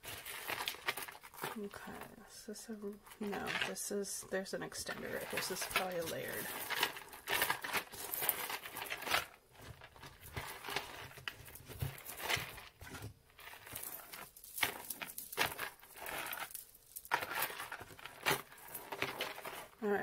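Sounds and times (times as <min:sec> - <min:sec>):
beaded necklace clicking: 0:13.4 - 0:19.7.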